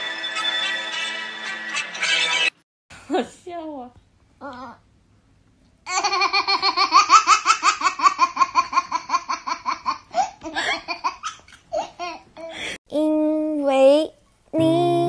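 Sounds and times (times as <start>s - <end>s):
toddler laughing: 5.9s - 12.6s.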